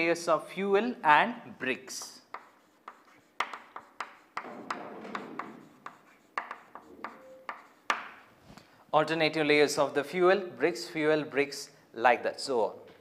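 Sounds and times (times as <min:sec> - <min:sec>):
chalk scratching on blackboard: 0:01.9 - 0:08.3
chalk tapping on blackboard: 0:01.9 - 0:08.3.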